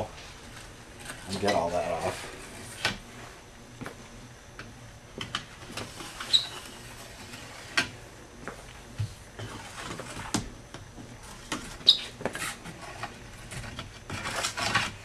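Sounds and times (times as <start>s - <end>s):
wax brush scratching ski edge: 1.0s - 2.8s.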